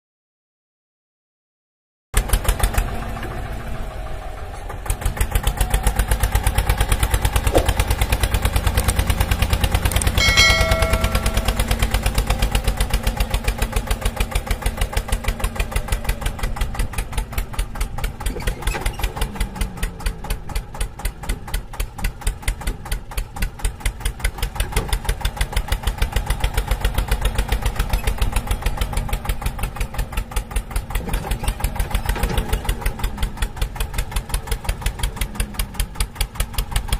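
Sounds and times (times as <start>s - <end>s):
small tractor engine running: 2.2s - 36.9s
brief high tone: 10.2s - 12.1s.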